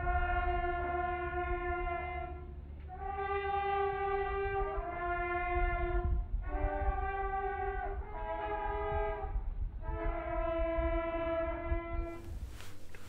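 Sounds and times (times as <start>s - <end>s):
slow held horn-like chords: 0.0s - 13.0s
low rumble: 12.1s - 13.0s.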